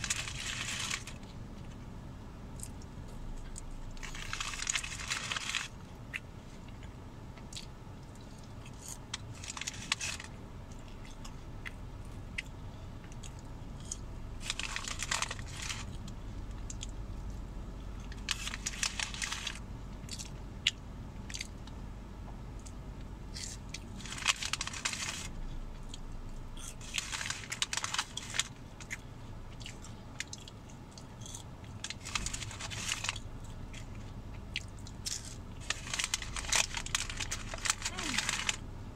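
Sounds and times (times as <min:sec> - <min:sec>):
paper bag rustling: 0:00.0 - 0:01.2, 0:24.0 - 0:25.3, 0:26.9 - 0:28.5, 0:32.0 - 0:33.2, 0:35.6 - 0:38.6
chewing fries: 0:00.0 - 0:01.8, 0:02.5 - 0:21.8, 0:22.4 - 0:38.7
low steady rumble: 0:00.0 - 0:38.9.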